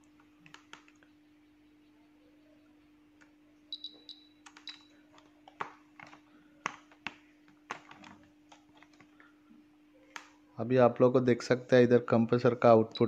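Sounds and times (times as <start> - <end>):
faint low hum: 0.0 - 13.0
test probes clicking and tapping: 0.1 - 1.1, 3.2 - 9.1
short high beeps: 3.7 - 4.9.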